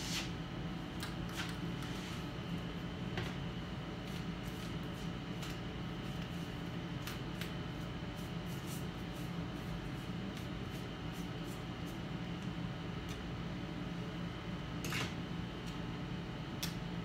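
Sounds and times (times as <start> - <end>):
hand brush swishing: 0.0 - 0.4
steady low hum: 0.0 - 17.0.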